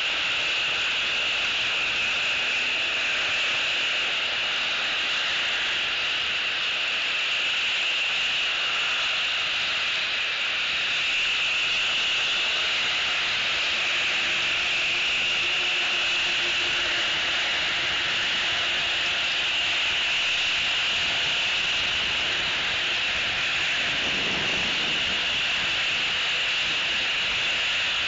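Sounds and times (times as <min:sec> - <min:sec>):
constant hiss: 0:00.0 - 0:28.0.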